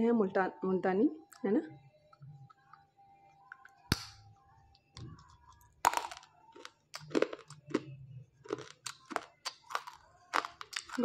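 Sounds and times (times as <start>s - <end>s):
chewing crunches: 5.9s - 11.0s
teeth biting clay: 5.9s - 11.0s.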